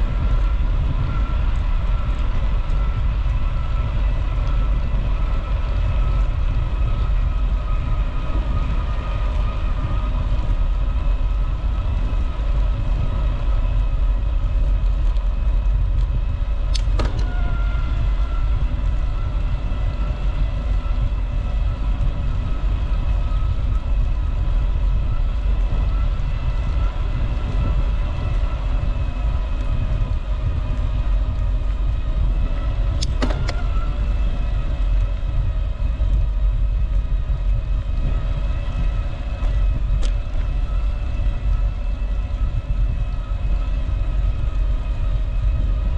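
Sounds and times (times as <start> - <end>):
steady multi-tone whine: 0.0 - 45.9
wind rumbling on microphone: 0.0 - 45.9.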